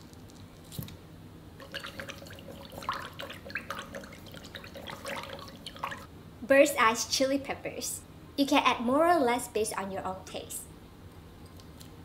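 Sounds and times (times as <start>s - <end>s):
liquid splashing: 1.6s - 6.1s.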